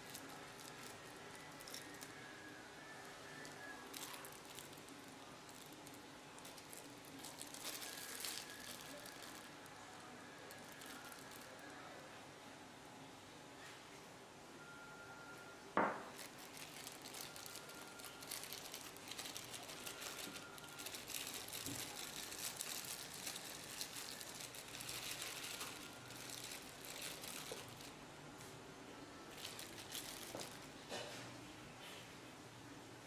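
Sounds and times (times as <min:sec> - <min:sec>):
plastic bag crinkling: 0:00.0 - 0:02.3, 0:03.0 - 0:09.8, 0:10.5 - 0:11.7, 0:15.8 - 0:28.0, 0:29.3 - 0:30.8.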